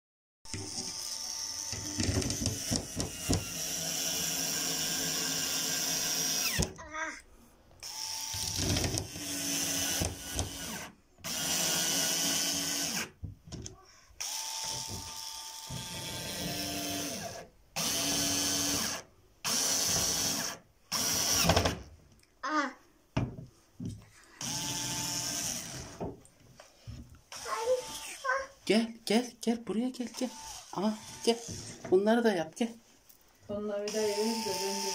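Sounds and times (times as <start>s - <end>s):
cordless screwdriver motor whirring: 0.5s - 6.7s, 7.8s - 13.1s, 14.2s - 21.5s, 24.4s - 26.0s, 27.3s - 28.3s, 30.1s - 31.7s, 33.9s - 34.9s.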